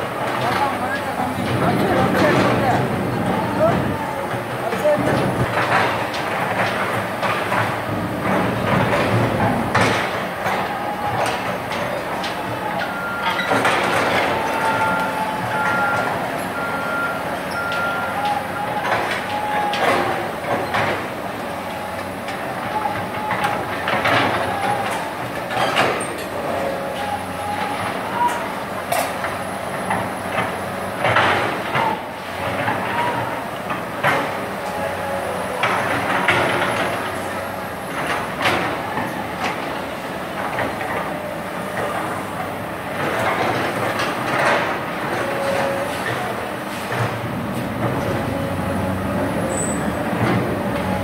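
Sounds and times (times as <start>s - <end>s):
diesel engine under load: 0.0s - 51.0s.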